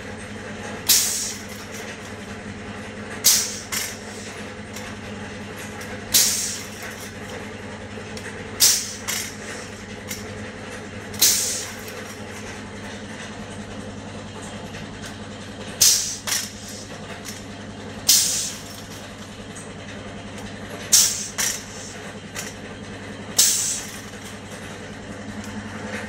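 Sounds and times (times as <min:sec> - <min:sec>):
mechanical hum: 0:00.0 - 0:26.0
compressed air hissing: 0:00.9 - 0:01.8, 0:03.2 - 0:04.5, 0:06.1 - 0:07.0, 0:08.6 - 0:09.8, 0:11.2 - 0:12.1, 0:15.8 - 0:16.9, 0:18.1 - 0:18.9, 0:20.9 - 0:22.5, 0:23.4 - 0:24.2.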